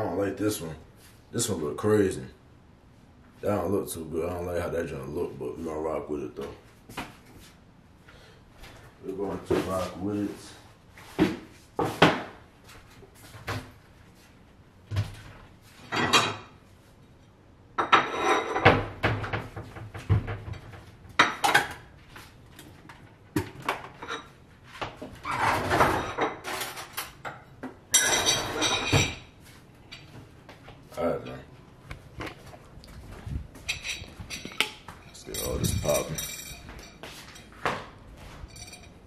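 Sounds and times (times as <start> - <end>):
pots and pans clattering: 25.3 - 29.3.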